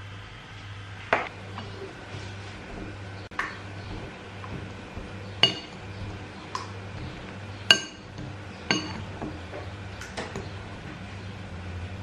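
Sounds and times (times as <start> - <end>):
metal utensil clinking on glass bowl: 5.4 - 5.8, 7.7 - 9.1.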